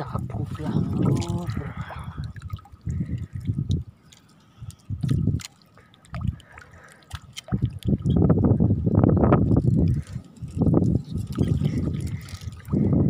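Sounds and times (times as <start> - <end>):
footsteps sloshing through mud: 0.4 - 3.0.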